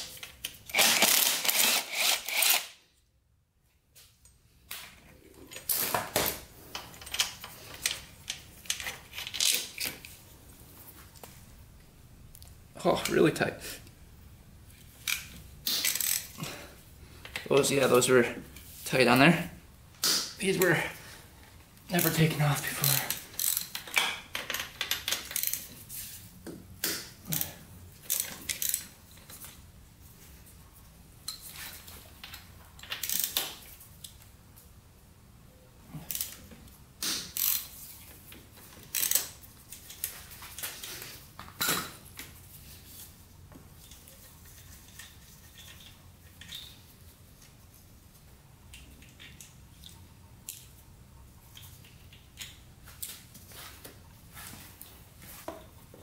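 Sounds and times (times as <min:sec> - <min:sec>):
ratchet clicking: 0:15.8 - 0:16.3, 0:22.9 - 0:23.8, 0:33.0 - 0:33.4, 0:37.4 - 0:37.7.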